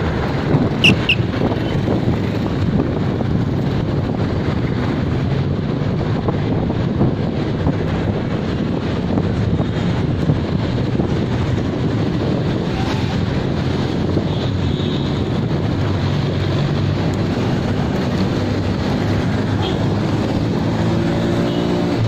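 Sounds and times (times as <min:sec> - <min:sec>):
passing city traffic: 0:00.0 - 0:22.0
wind buffeting microphone: 0:00.0 - 0:22.0.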